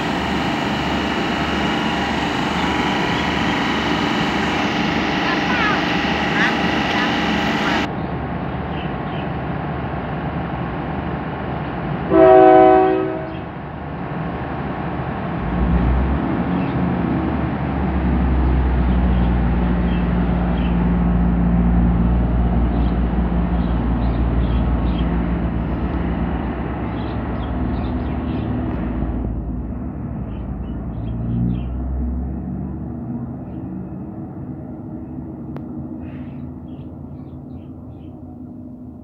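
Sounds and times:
diesel engine rumble: 0.0s - 39.0s
train horn blast: 12.1s - 13.5s.

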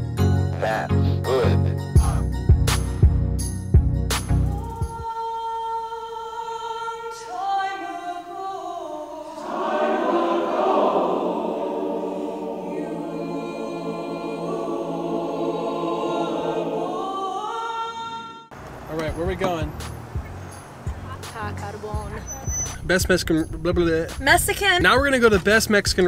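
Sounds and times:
mixed choir singing held chords: 6.2s - 18.5s.

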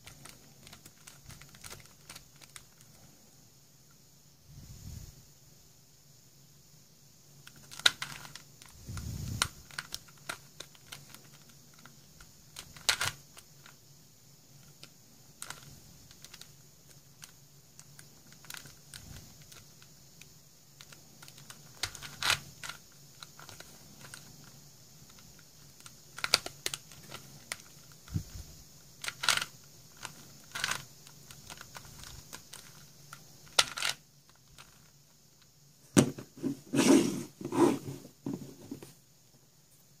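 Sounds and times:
plastic puzzle pieces clicking: 0.0s - 3.0s, 7.4s - 8.7s, 12.5s - 13.8s, 17.2s - 19.8s, 20.8s - 24.3s, 25.1s - 28.0s, 29.0s - 34.9s.

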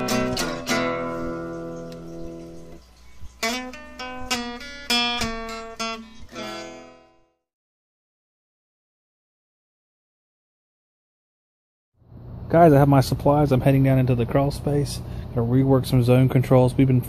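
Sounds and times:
acoustic guitar music: 0.0s - 7.4s.

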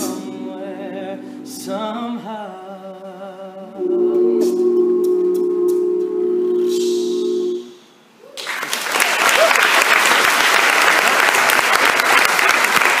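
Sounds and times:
male a cappella group singing: 0.0s - 5.1s
audience applause: 8.3s - 13.0s.

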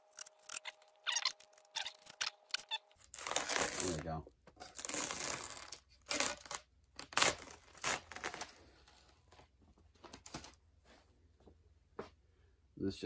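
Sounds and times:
peel ply ripping: 0.0s - 9.1s.

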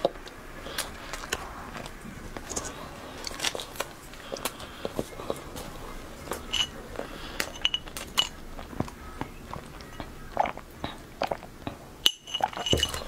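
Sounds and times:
chewing with crunchy clicks: 0.0s - 13.0s
sipping water through a straw: 0.0s - 13.0s
glass clinking: 6.2s - 8.4s, 12.0s - 13.0s.

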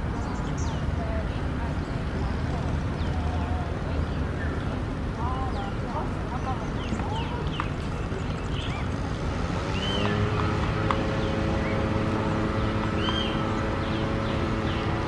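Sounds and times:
low motor drone: 0.0s - 15.0s
bird chirps: 9.7s - 10.3s, 12.9s - 15.0s.

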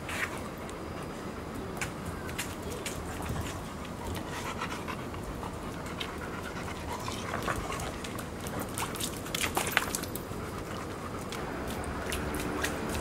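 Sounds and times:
dogs panting: 2.8s - 9.3s
water splashes: 5.9s - 13.0s.

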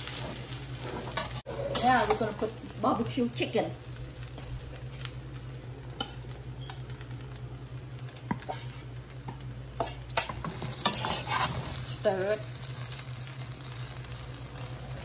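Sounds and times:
utensil scraping a wok: 0.0s - 2.6s, 8.3s - 13.1s
rice sizzling in a wok: 0.0s - 15.0s.

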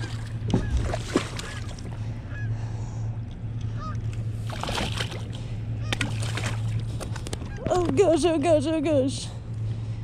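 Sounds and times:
water splash: 0.0s - 1.9s, 4.4s - 5.4s, 6.0s - 6.8s
steady low hum: 0.0s - 10.0s
geese honking: 3.7s - 4.0s.

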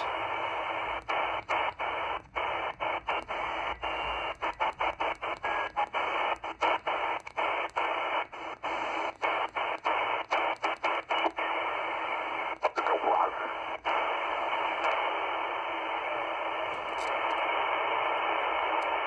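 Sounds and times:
radio receiver hissing: 0.0s - 19.0s.

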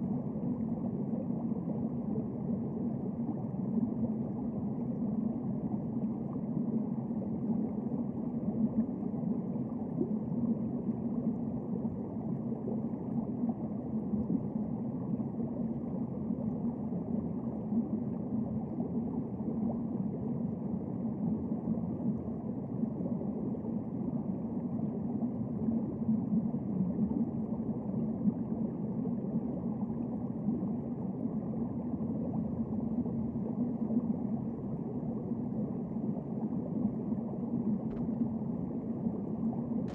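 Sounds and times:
muffled underwater rumble: 0.0s - 39.9s.

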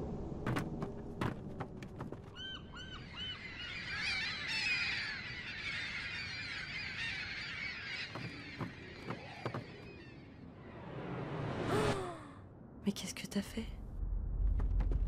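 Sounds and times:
flock of birds calling: 2.4s - 10.4s.

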